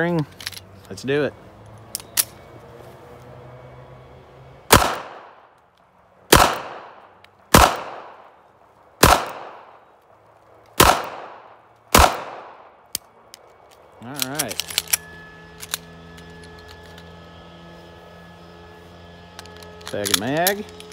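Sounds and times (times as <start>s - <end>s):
pistol gunshots: 4.7s - 5.4s, 6.3s - 8.3s, 9.0s - 9.8s, 10.8s - 12.8s.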